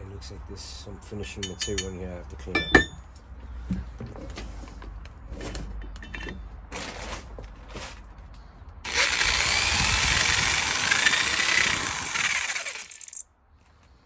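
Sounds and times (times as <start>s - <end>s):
power drill boring metal: 8.9s - 13.2s.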